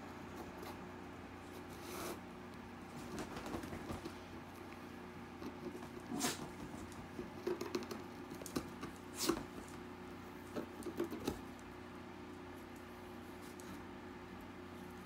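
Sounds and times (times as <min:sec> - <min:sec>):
dog paws clicking on floor: 0:02.9 - 0:04.8, 0:05.4 - 0:09.9.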